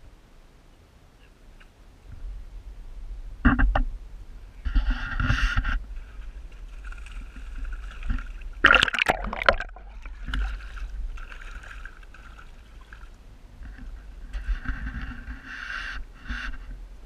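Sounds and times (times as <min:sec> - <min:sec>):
faint steady hum: 0:00.0 - 0:17.0
fish splashing in water: 0:06.6 - 0:13.2.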